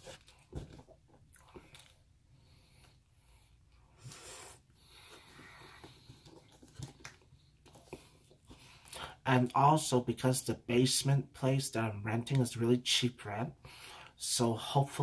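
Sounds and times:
breath: 0:02.4 - 0:06.3, 0:08.0 - 0:09.2, 0:13.6 - 0:14.2.

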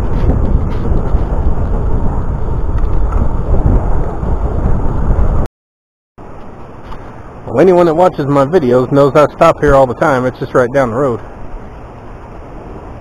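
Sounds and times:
wind buffeting microphone: 0:00.0 - 0:05.5.

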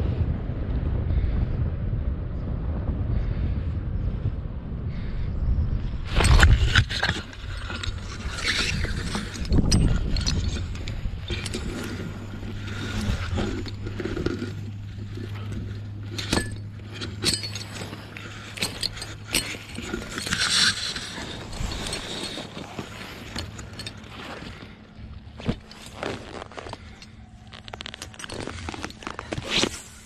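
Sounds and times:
low steady hum: 0:00.0 - 0:30.0
metal hardware clinks: 0:06.2 - 0:24.7
clothing rustling against tall grass: 0:06.9 - 0:30.0.

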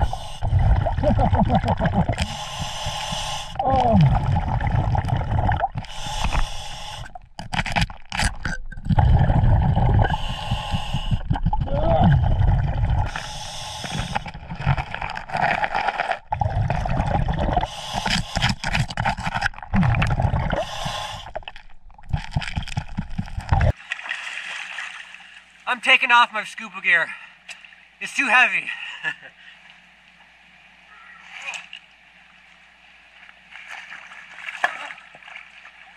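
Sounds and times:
hissing regulator inhale: 0:00.0 - 0:00.6, 0:02.2 - 0:03.6, 0:05.8 - 0:07.2, 0:09.9 - 0:11.3, 0:13.1 - 0:14.4, 0:17.6 - 0:18.7, 0:20.5 - 0:21.4
exhaled bubbles rumbling: 0:00.0 - 0:23.8.

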